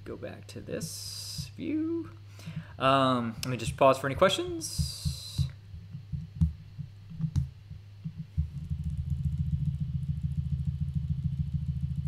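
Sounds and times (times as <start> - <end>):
low pulsing rumble: 4.7 - 12.0.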